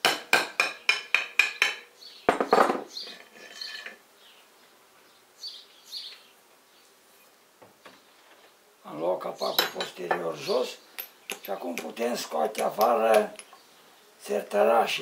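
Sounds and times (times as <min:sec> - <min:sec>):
hammer tapping on metal: 0:00.0 - 0:02.8, 0:11.0 - 0:13.6.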